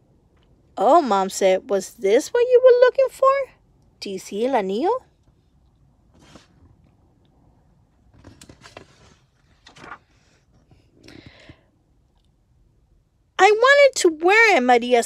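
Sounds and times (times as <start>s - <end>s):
book pages rustling: 6.1s - 7.0s, 8.0s - 11.5s.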